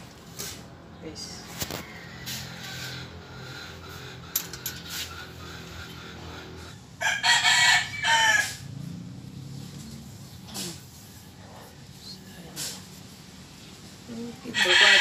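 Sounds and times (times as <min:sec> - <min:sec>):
light clicks of metal parts: 0:04.3 - 0:05.1
rooster crowing: 0:07.0 - 0:08.9, 0:14.5 - 0:15.0.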